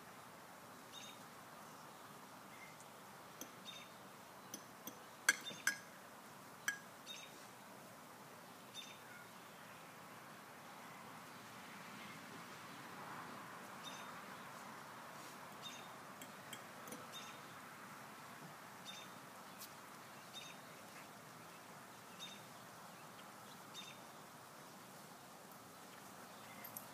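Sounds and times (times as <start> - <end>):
bird chirping: 0.9 - 2.8, 3.4 - 5.8, 6.6 - 7.4, 8.7 - 9.9, 13.8 - 14.6, 15.6 - 17.6, 18.8 - 24.8.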